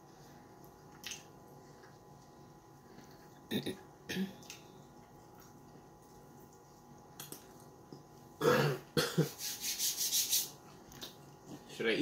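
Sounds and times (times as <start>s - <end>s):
man clearing his throat: 8.4s - 9.4s.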